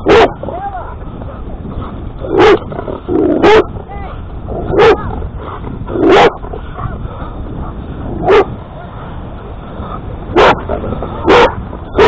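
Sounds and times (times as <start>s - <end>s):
dog barking: 0.0s - 0.4s, 2.3s - 2.6s, 3.4s - 3.7s, 4.6s - 5.1s, 6.0s - 7.0s, 7.6s - 8.5s, 10.3s - 12.0s.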